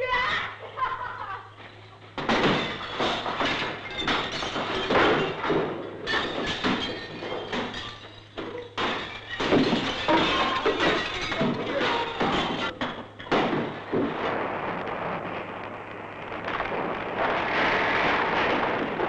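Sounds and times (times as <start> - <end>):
objects crashing and clattering: 1.6 - 19.0
window glass breaking: 2.2 - 15.0.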